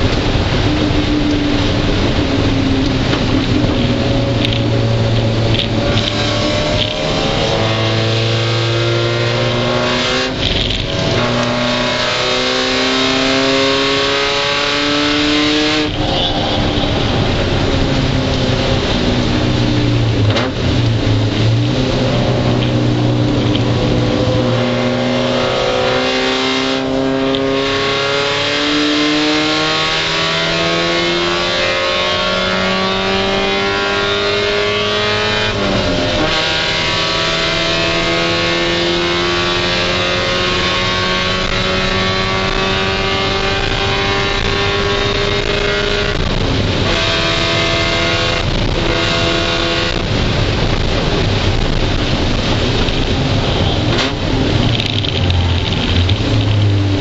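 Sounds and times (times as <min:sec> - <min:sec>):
race car engine pulling hard: 0:00.0 - 0:57.0
gear upshifts: 0:50.7 - 0:57.0.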